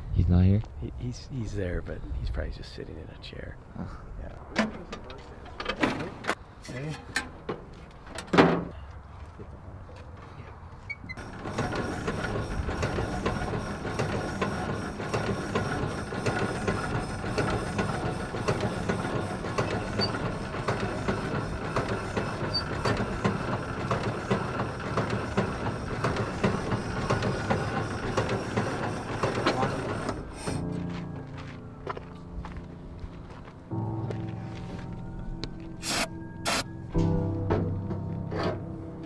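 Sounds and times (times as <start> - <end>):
engine turning over with clatter: 11.2 - 30.6.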